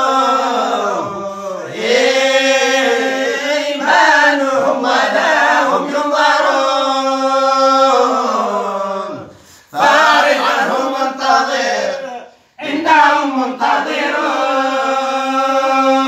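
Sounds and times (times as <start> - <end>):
group chanting in unison: 0.0 - 16.0.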